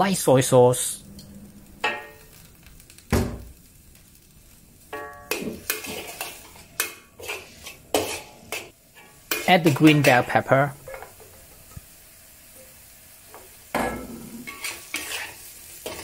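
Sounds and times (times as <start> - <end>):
spatula clanking on a wok: 1.8 - 2.3, 4.9 - 11.7, 13.4 - 16.0.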